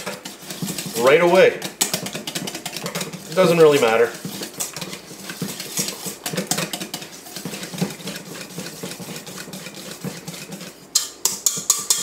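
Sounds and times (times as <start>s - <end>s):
whisk scraping metal bowl: 0.0s - 12.0s.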